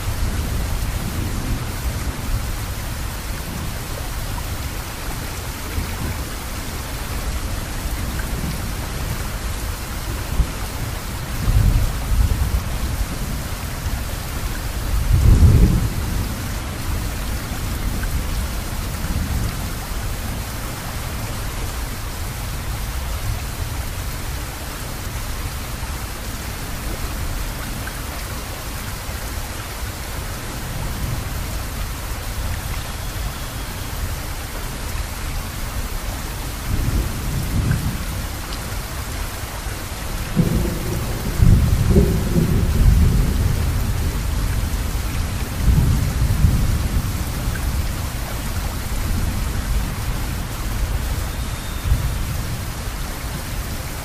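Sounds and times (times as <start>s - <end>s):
rain hiss: 0.0s - 54.0s
low thunder rumbles: 10.3s - 19.8s, 40.2s - 51.2s.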